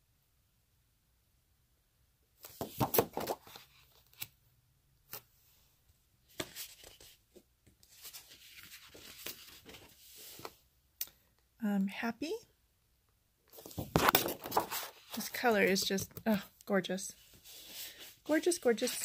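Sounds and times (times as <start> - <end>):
paper rustling and flapping: 2.4 - 4.3, 7.9 - 10.6, 13.5 - 16.0, 17.3 - 19.0
paper sliding rustle: 6.3 - 7.2, 7.8 - 10.6, 13.6 - 15.8, 17.2 - 19.0.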